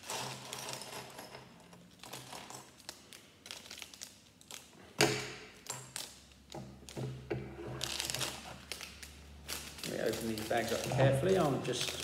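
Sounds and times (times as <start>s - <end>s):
plastic crinkling: 1.9s - 4.9s, 7.8s - 12.0s.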